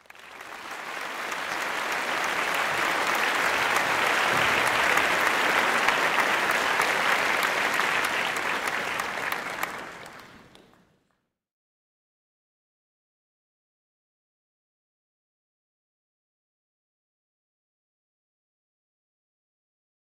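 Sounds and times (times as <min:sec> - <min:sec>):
crowd clapping: 0:00.0 - 0:11.2.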